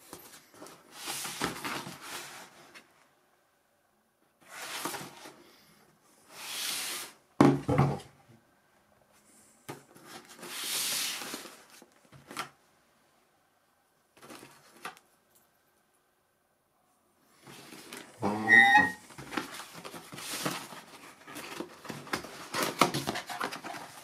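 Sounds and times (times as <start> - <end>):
cardboard scraping and rustling: 0.0 - 2.9, 4.4 - 5.4, 17.4 - 24.0.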